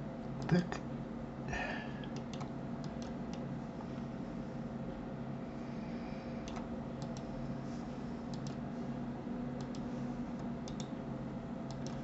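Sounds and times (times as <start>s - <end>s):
steady low hum: 0.0s - 12.0s
mouse buttons clicking: 10.6s - 10.9s.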